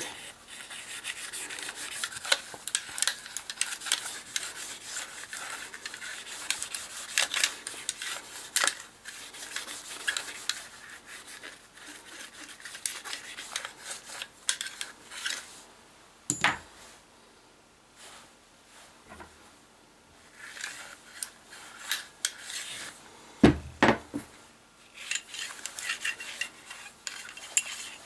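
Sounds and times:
rod scraping through barrel: 0.0s - 15.5s, 24.9s - 28.0s.

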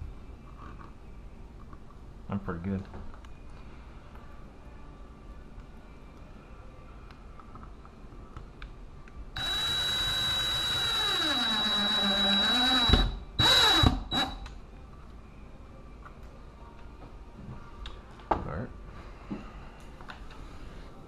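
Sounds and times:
cordless drill driving screw: 9.4s - 14.4s.

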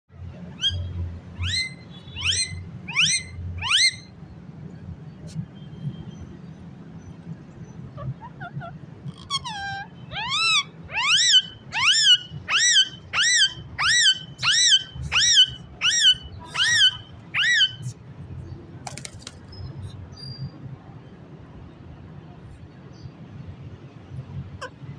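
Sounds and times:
parakeet calling: 0.6s - 4.1s, 7.8s - 17.9s.

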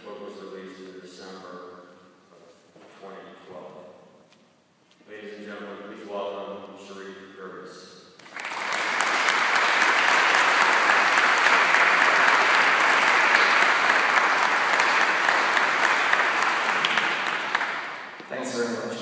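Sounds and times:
audience applause: 8.2s - 18.2s.

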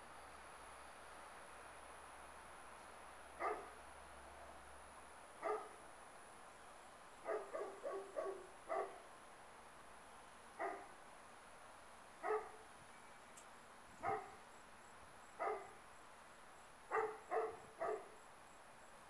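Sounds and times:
dog barking: 3.4s - 3.8s, 5.4s - 5.8s, 7.2s - 9.0s, 10.6s - 10.9s, 12.2s - 12.6s, 14.0s - 14.4s, 15.4s - 15.8s, 16.9s - 18.2s.

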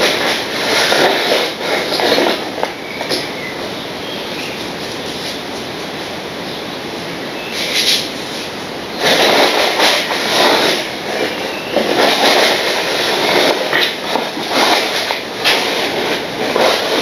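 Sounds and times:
model train rattling over rails: 0.0s - 3.8s, 7.6s - 17.0s.

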